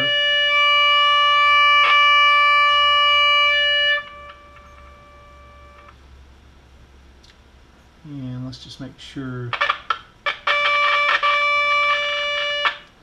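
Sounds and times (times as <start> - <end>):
steady test tone through speaker: 0.0 - 6.0, 9.2 - 13.0.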